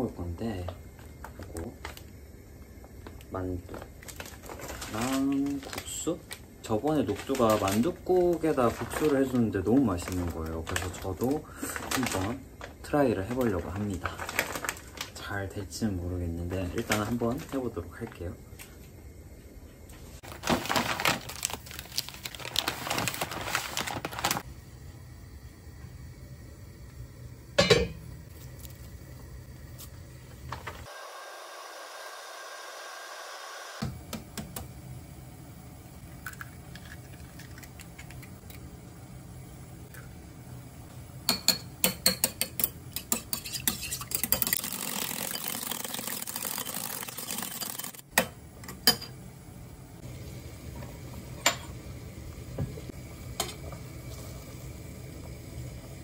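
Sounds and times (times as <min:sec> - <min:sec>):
eggs beaten in ceramic bowl: 0:41.3 - 0:48.0.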